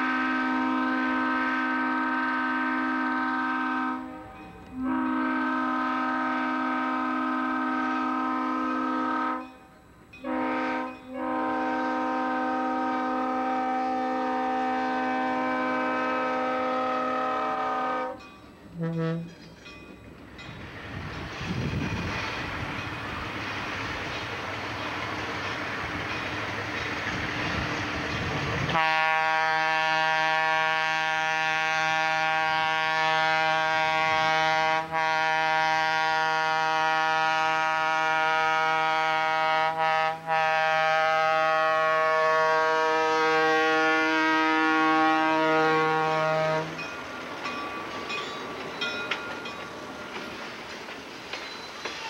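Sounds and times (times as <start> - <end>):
locomotive air horn blast: 0.0 - 9.5, 10.2 - 19.4, 28.7 - 46.8
wheels clicking over rail joints: 18.2 - 28.8, 46.7 - 52.0.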